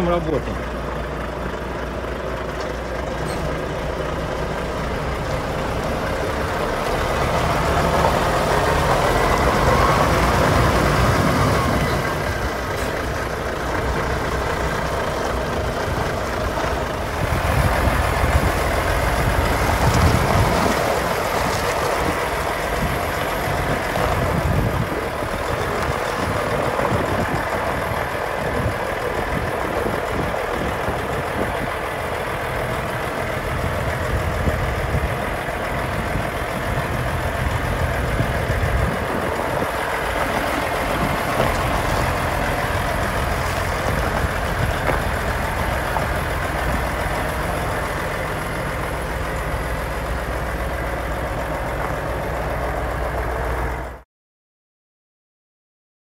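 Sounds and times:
diesel truck engine running: 0.0s - 54.0s.

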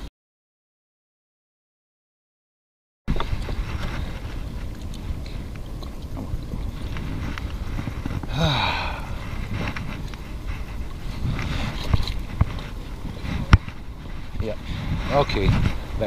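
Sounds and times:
knocks and scrapes on rocks: 3.1s - 8.3s, 9.2s - 16.0s
wind rumbling on microphone: 3.1s - 16.0s.

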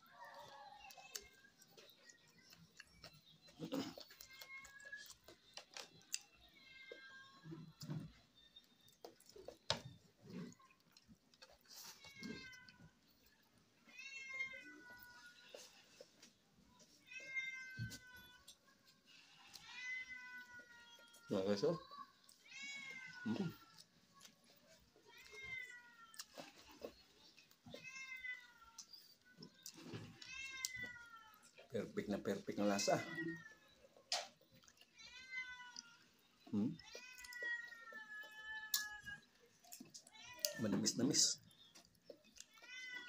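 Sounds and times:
eating sounds: 0.0s - 17.0s, 17.9s - 43.0s
cat meowing: 22.4s - 23.8s, 32.9s - 33.8s, 36.6s - 39.4s, 42.4s - 43.0s.

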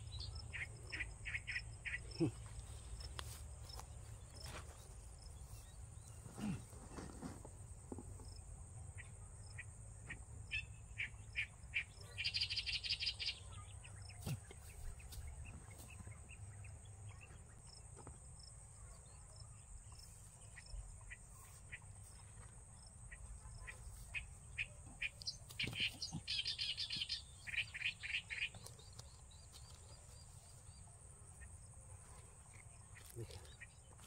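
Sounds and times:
bird chirps: 10.5s - 17.8s, 23.1s - 31.5s.

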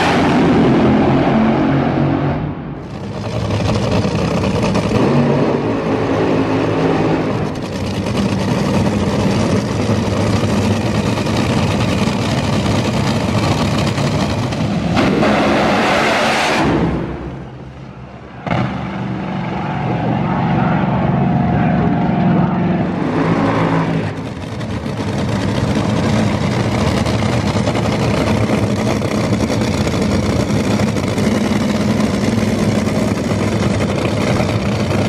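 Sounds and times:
loud engine starting: 0.0s - 17.6s
drag-racing engine running rough: 0.0s - 35.0s.

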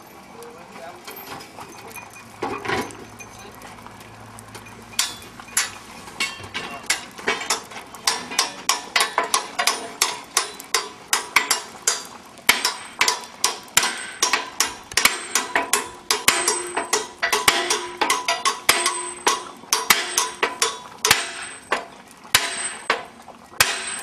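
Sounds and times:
sledgehammer striking steel: 5.0s - 24.0s.

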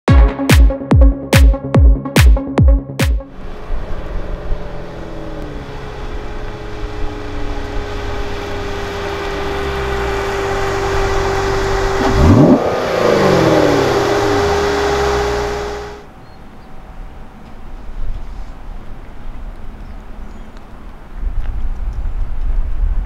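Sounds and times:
sports car engine accelerating: 3.2s - 16.1s
car passing by: 3.3s - 16.1s.

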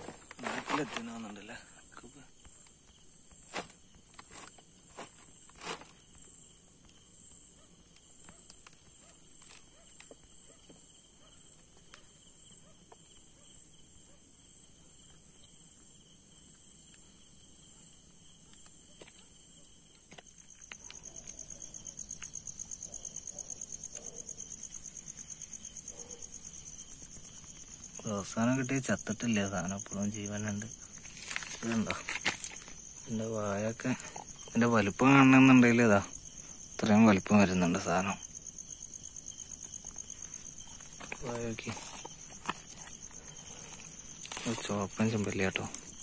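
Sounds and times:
crickets trilling: 0.0s - 46.0s
fast-pulsing insect trill: 20.3s - 46.0s.

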